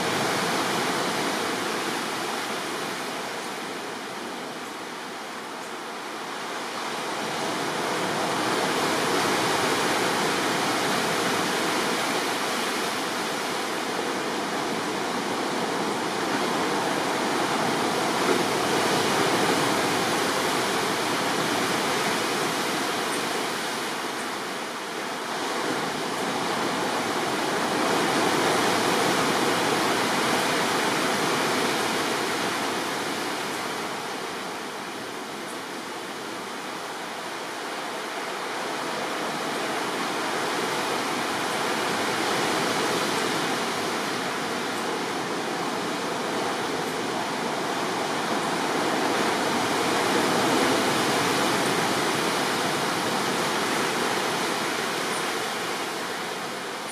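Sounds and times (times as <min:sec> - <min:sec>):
sea surf breaking over rocks: 0:00.0 - 0:03.3, 0:06.8 - 0:35.4, 0:38.0 - 0:56.9.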